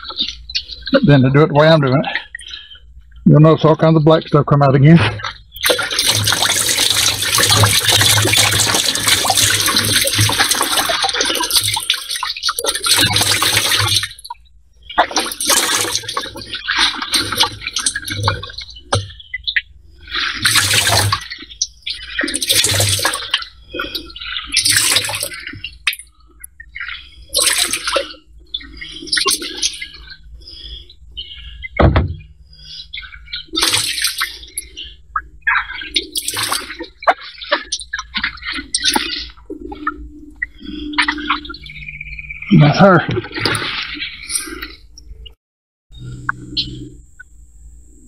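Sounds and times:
liquid pouring into plastic bin: 5.6s - 14.2s, 15.0s - 18.4s, 20.4s - 21.3s, 22.3s - 23.4s, 24.6s - 25.3s.

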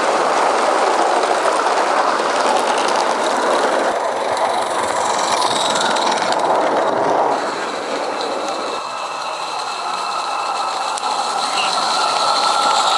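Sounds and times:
steam hiss and rolling wheels: 0.0s - 12.9s
wheels clicking over rail joints: 0.0s - 12.9s.

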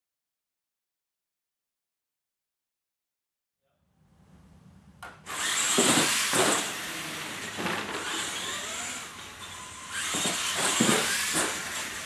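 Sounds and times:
electric motors whining: 5.3s - 12.0s
loud knocks: 10.2s - 11.7s.

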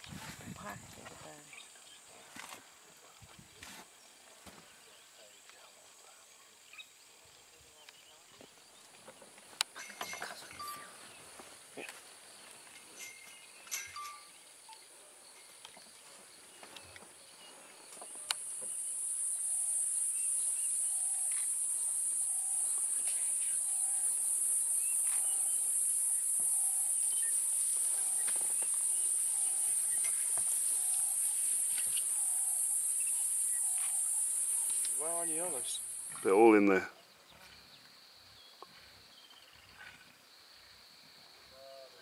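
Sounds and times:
high-pitched insect chorus: 0.0s - 42.0s.

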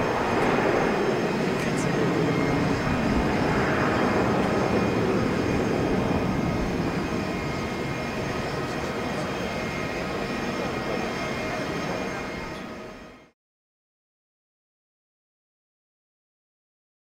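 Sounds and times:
jet engines rumbling at takeoff: 0.0s - 13.3s.

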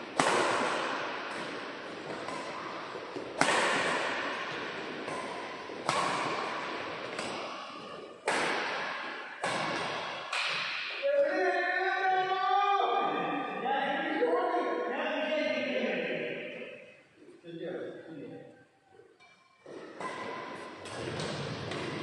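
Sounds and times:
shuttlecock hits echoing: 0.0s - 11.2s, 19.2s - 22.0s
voices: 10.3s - 16.5s.

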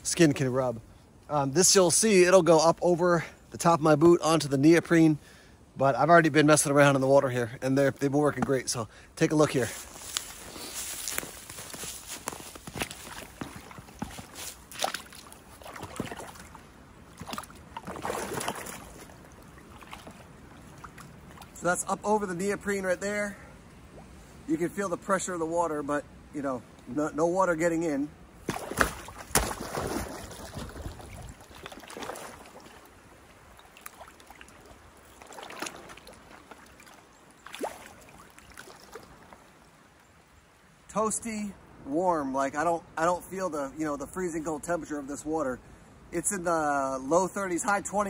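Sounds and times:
water sloshing and splashing: 9.8s - 21.9s, 28.4s - 39.7s
ice knocking and cracking: 28.5s - 30.8s.

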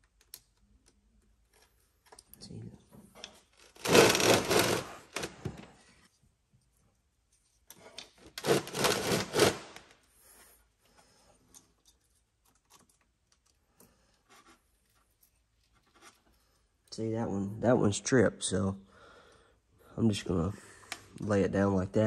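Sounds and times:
metal toy scraping on wood: 3.6s - 5.4s, 7.9s - 9.8s.

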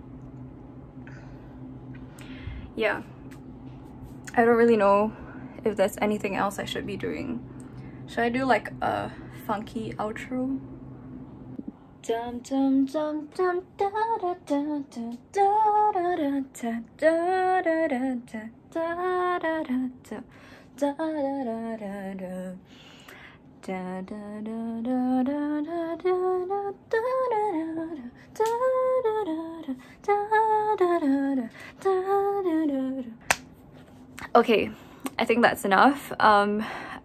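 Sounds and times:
woman singing long sliding notes: 12.0s - 22.6s.

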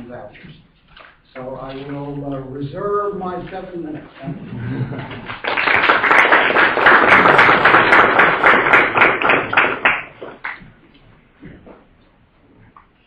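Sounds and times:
audience applauding: 4.9s - 10.6s.

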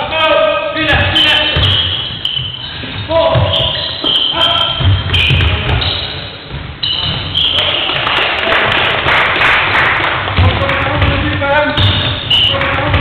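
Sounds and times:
echoing hall noise: 0.0s - 13.0s
players calling: 0.7s - 8.2s, 10.3s - 13.0s
shoes squeaking on wooden court: 0.8s - 8.2s, 10.6s - 13.0s
ball bouncing thuds: 0.9s - 1.9s, 3.3s - 7.4s, 10.3s - 13.0s.

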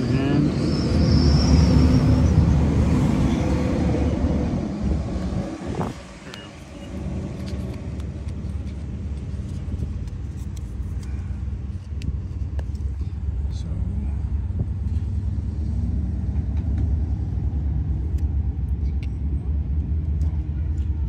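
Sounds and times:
wind buffeting microphone: 2.4s - 6.2s, 14.3s - 16.4s.

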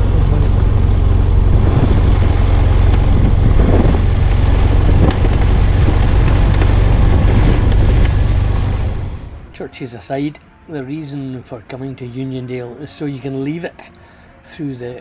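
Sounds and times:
motorcycle engine running: 0.0s - 9.5s
road and wind rumble: 0.0s - 9.6s.

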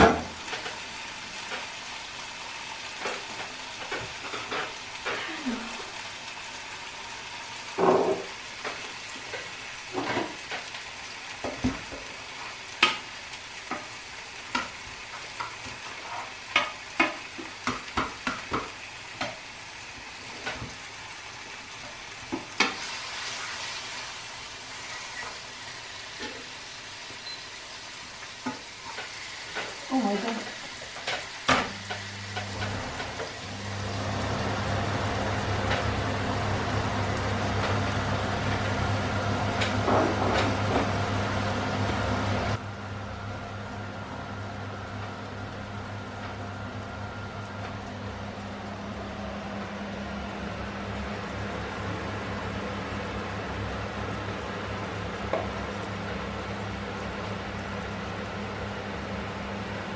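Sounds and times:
extractor fan humming: 0.0s - 59.9s
food sizzling in frying pans: 0.0s - 59.9s.

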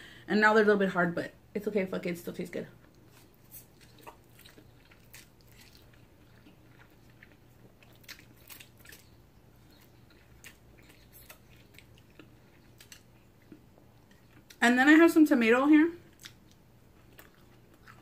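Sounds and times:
low steady hum: 0.0s - 18.0s
person chewing noodles: 2.8s - 14.6s, 16.1s - 18.0s.

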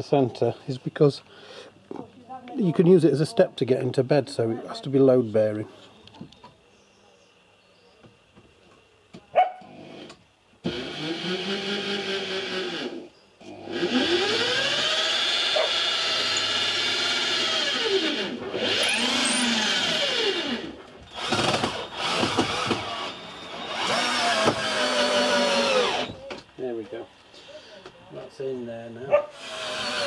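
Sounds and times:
cordless drill drilling into wood: 9.9s - 26.2s, 29.3s - 30.0s.

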